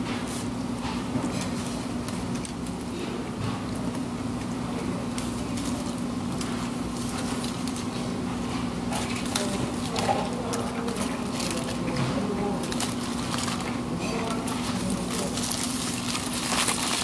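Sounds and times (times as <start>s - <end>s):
steady low hum: 0.0s - 17.0s
aluminium foil crinkling: 1.3s - 17.0s
fork scraping food off foil: 5.2s - 17.0s.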